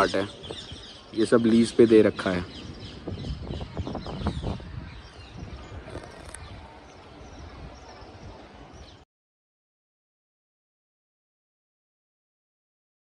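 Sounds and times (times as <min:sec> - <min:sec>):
outdoor background noise: 0:00.0 - 0:09.1.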